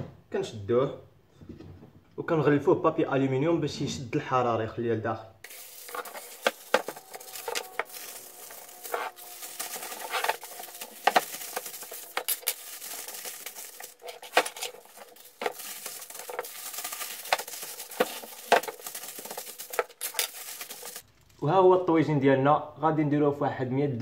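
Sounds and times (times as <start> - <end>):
aluminium foil crinkling: 5.4 - 21.4.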